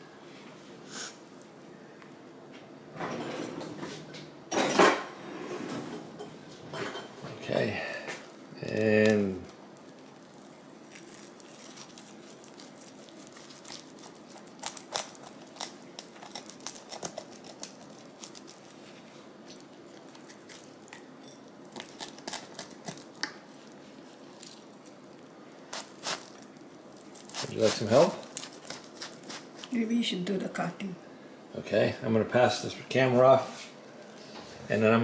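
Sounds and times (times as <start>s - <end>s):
pizza being handled and cut: 8.6s - 20.9s, 25.7s - 29.8s.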